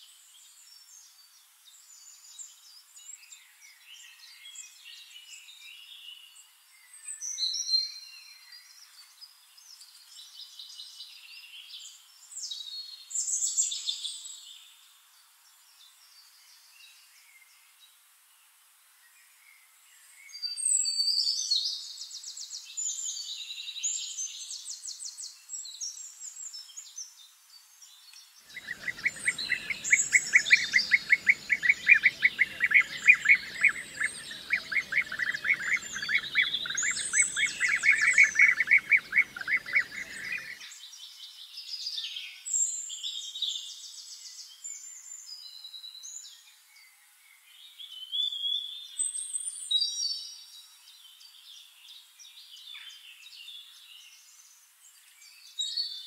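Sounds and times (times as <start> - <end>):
small birds chirping: 20.2 - 46.4.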